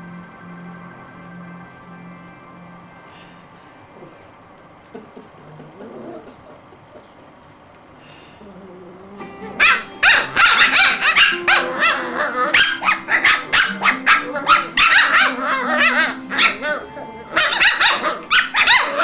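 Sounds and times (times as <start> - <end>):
background music: 0.0 - 6.1, 8.7 - 19.0
puppies yapping and yelping: 9.6 - 19.0.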